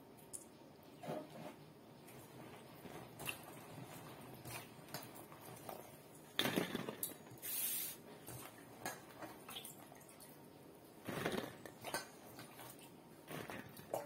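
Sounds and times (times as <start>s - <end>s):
hands squelching wet mixture: 2.1s - 6.3s, 8.0s - 14.0s
brief hiss: 7.4s - 8.0s.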